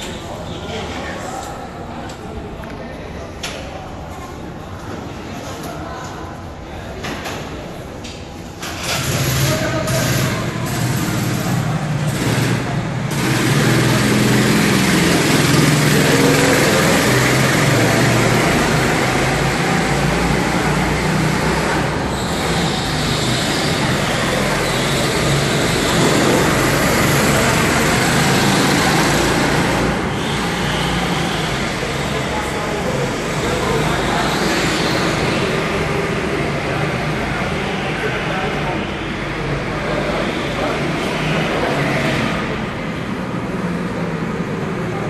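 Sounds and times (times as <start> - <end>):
go-kart engines idling and revving: 7.1 - 45.0.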